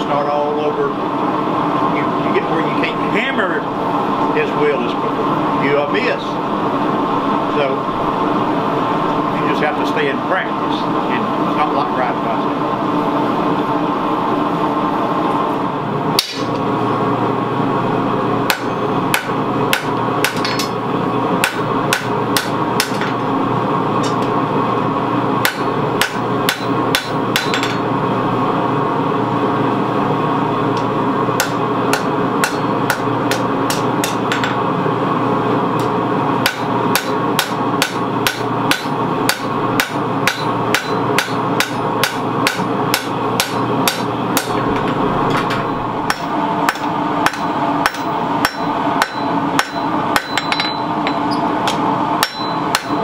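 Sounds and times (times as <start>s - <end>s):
hammer striking steel on anvil: 16.2s - 16.6s, 18.5s - 20.8s, 21.4s - 23.2s, 25.4s - 27.8s, 31.4s - 34.6s, 35.8s - 44.6s, 45.5s - 53.0s.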